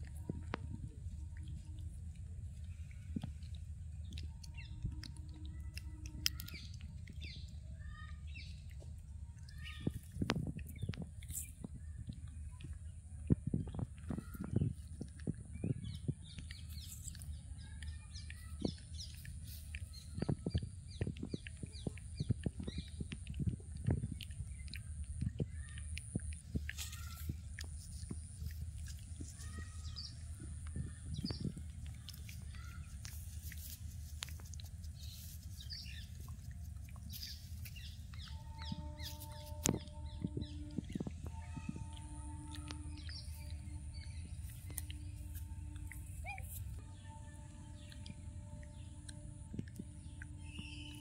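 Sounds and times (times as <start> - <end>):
soft crackles and rustles: 0.0 - 46.8
low steady rumble: 0.0 - 51.0
small birds chirping: 0.0 - 51.0.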